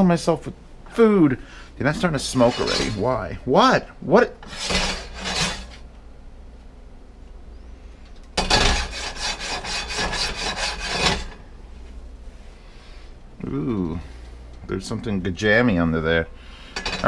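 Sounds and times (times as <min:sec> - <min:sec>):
frying pan rasping on burner: 0:04.4 - 0:05.8, 0:08.4 - 0:11.4.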